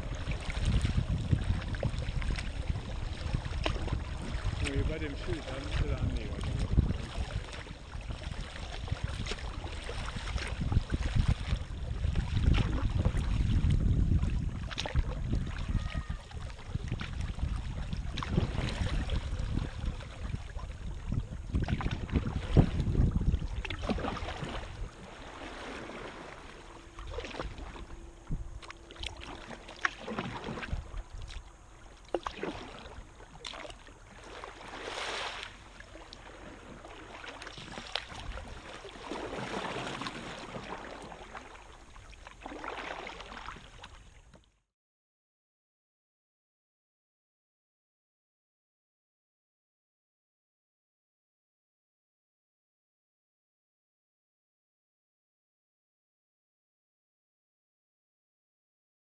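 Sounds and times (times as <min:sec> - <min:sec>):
low rumble: 0:00.0 - 0:32.0
paddle splashing in water: 0:00.0 - 0:44.5.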